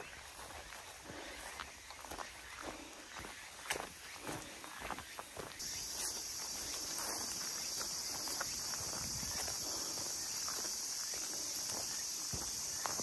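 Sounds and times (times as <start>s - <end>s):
footsteps on a trail: 0.0s - 13.0s
high-pitched insect buzz: 5.6s - 13.0s.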